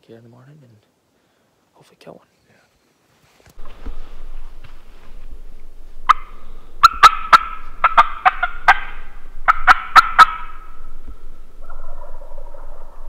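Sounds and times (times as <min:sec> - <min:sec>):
turkeys gobbling: 0:06.0 - 0:13.0.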